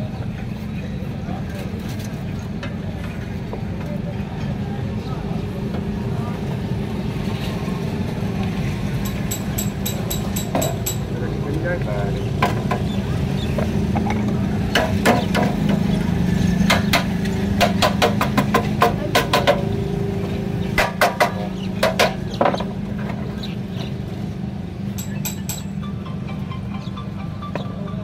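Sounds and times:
metallic knocks and clinks: 9.0s - 11.1s, 24.9s - 25.8s.

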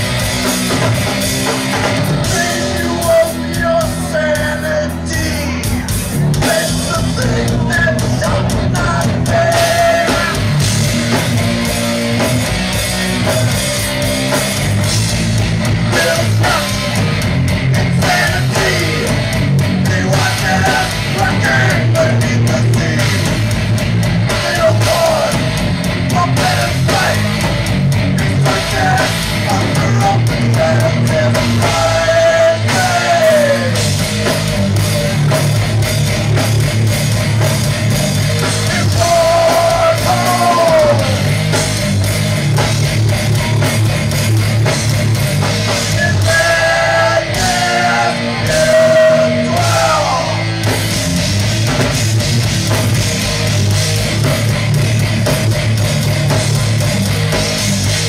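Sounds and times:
drums: 0.0s - 58.0s
electric guitars: 0.0s - 58.0s
person singing: 28.2s - 33.8s, 38.6s - 41.3s, 45.8s - 50.5s.

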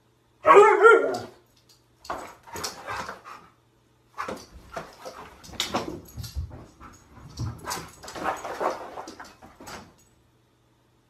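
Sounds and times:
thumps of movement on floor: 4.2s - 10.1s.

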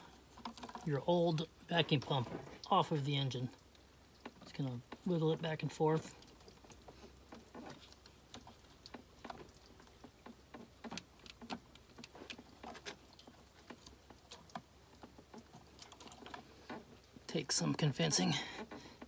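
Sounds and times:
faint clicks and taps: 3.5s - 5.4s, 6.0s - 17.4s.

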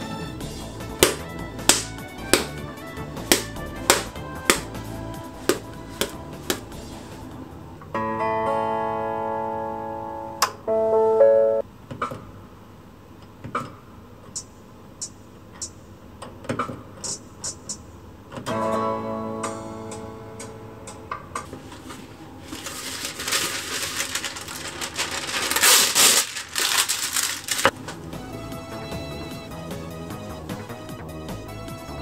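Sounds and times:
oven guitar chord chime: 7.9s - 11.6s, 18.5s - 21.1s.

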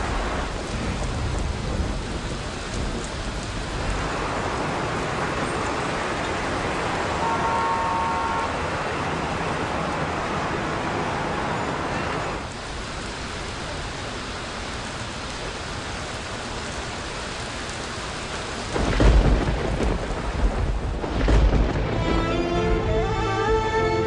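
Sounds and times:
thunder rolling: 0.0s - 5.5s, 18.6s - 23.6s
steady rain: 0.0s - 24.0s
music with held notes: 21.9s - 24.0s.

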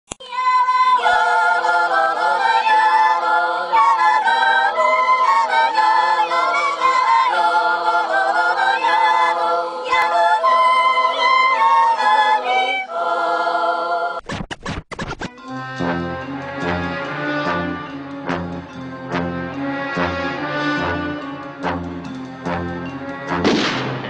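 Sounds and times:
choir singing unaccompanied: 0.2s - 14.2s.

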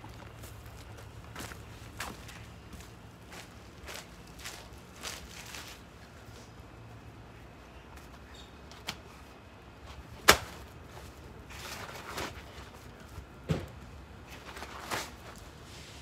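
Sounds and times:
rustling of sheet and tarp: 0.1s - 6.6s, 10.0s - 13.2s, 14.2s - 16.0s.

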